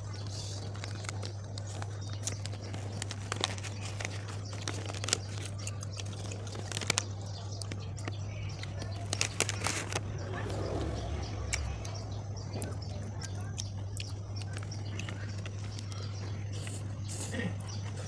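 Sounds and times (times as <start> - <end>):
steady low hum: 0.0 - 18.0
paper wrapper crinkling: 0.7 - 7.3, 8.6 - 10.0.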